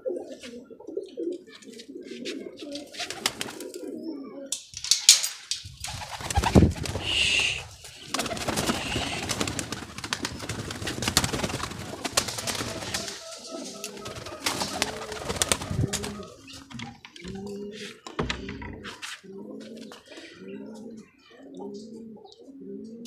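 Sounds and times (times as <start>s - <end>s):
pigeons cooing: 0.0s - 23.0s
wings flapping: 2.7s - 3.9s, 4.6s - 17.4s
wire cage rattling and knocking: 4.6s - 6.7s.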